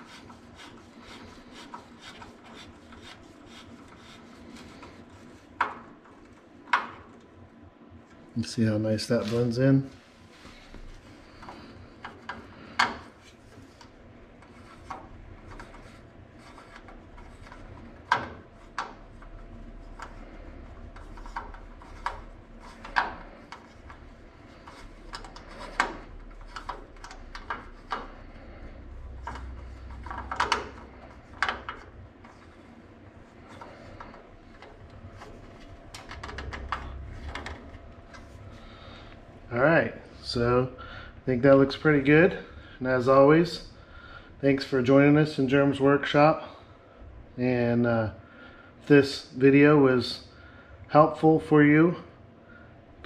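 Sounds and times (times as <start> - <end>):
screwdriver scraping metal: 0.0 - 6.4.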